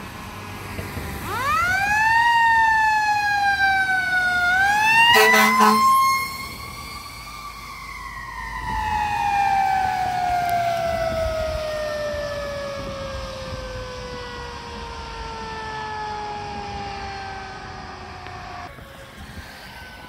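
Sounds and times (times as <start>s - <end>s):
truck engine rumble: 0.0s - 20.0s
mechanical siren winding down: 1.0s - 20.0s.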